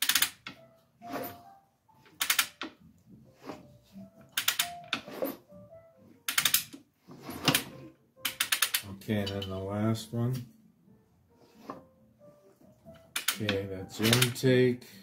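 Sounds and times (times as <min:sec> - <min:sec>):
rapid ratchet clicking: 0:00.0 - 0:00.4, 0:08.3 - 0:08.9, 0:13.2 - 0:13.4.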